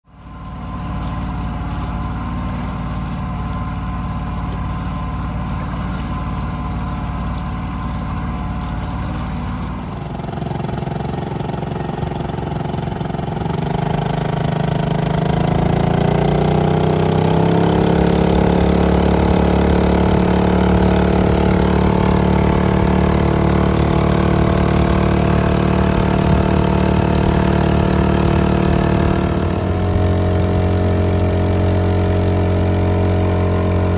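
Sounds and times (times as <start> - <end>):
outboard motor running: 0.1 - 33.9.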